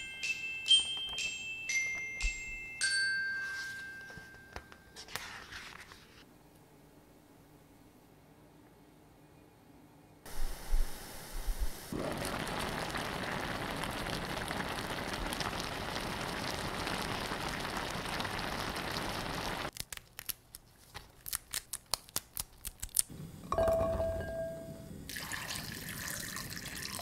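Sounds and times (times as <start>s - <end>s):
paper pages rustling: 3.4s - 4.4s, 5.0s - 6.3s, 19.7s - 22.5s
fish sizzling in a pot: 10.3s - 19.7s
chili stems snapping: 19.7s - 23.1s.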